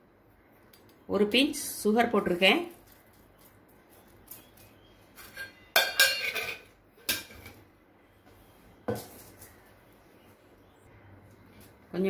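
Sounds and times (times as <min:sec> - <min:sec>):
metal kitchenware clinking: 0:05.2 - 0:07.6.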